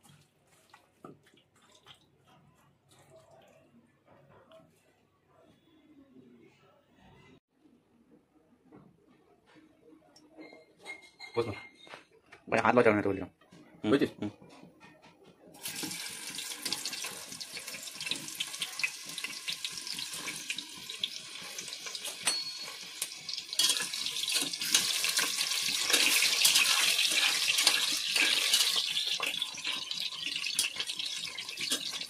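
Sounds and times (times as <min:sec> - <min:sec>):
potatoes sizzling in hot oil: 0:15.6 - 0:32.0.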